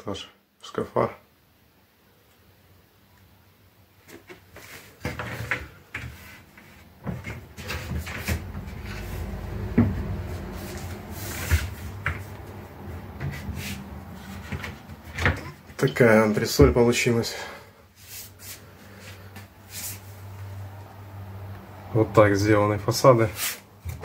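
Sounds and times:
handling noise: 4.0s - 15.9s.

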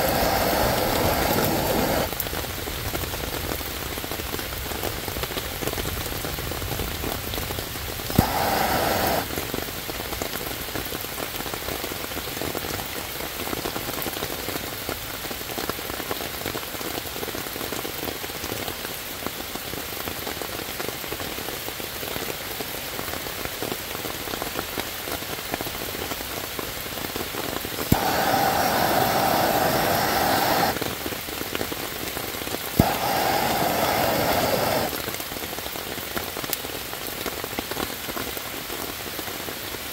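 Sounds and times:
gas torch clicking and hissing: 0.0s - 2.3s, 8.1s - 9.5s, 27.8s - 31.0s, 32.7s - 35.2s
rain falling on leaves: 0.0s - 39.9s.

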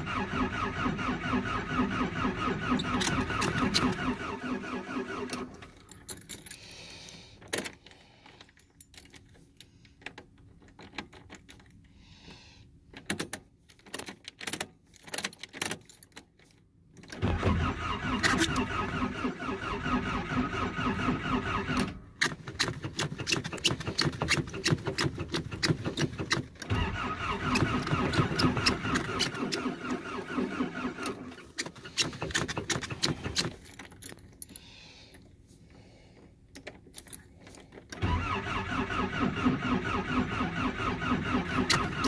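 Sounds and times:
engine cranking by starter: 0.0s - 5.9s, 17.2s - 33.8s, 37.9s - 42.0s.

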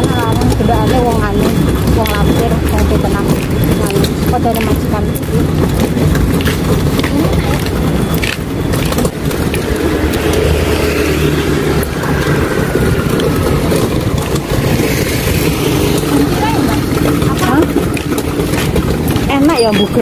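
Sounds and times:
metal cart rattling over asphalt: 0.0s - 20.0s
street traffic: 0.0s - 20.0s.

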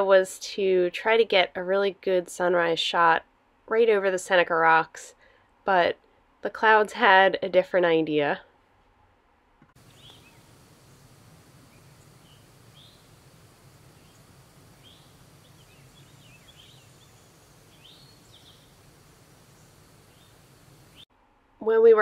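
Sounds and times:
birds chirping: 9.8s - 21.1s.

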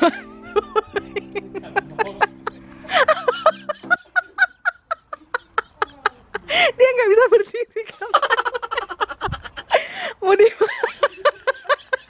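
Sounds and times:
low chord of tones: 0.0s - 4.4s
person laughing: 0.0s - 6.8s, 7.9s - 12.0s.

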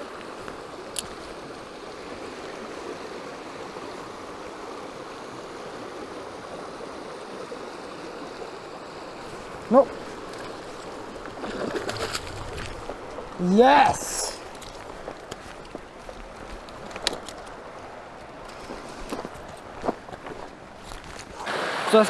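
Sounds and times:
river flowing over rocks: 0.0s - 22.0s
person exclaiming: 9.7s - 9.9s, 13.4s - 14.4s.

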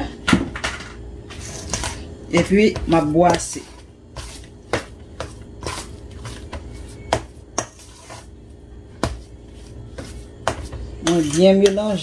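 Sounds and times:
metal spoon scraping steel bowl: 1.3s - 2.0s, 7.6s - 8.3s, 10.0s - 12.0s.

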